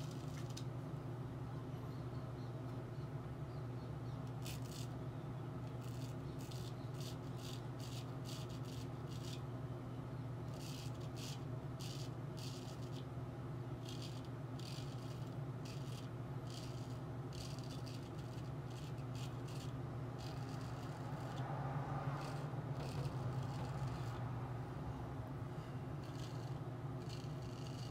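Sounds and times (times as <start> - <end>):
razor scraping stubble: 0.0 - 0.6, 4.2 - 5.0, 5.6 - 9.5, 10.4 - 13.1, 13.8 - 24.4, 25.5 - 27.9
steady low hum: 0.0 - 27.9.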